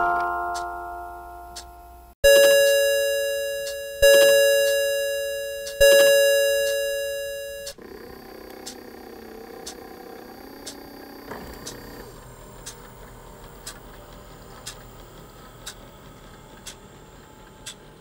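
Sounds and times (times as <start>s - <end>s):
clock chime striking: 2.2s - 7.7s
music box bell notes: 2.3s - 7.7s.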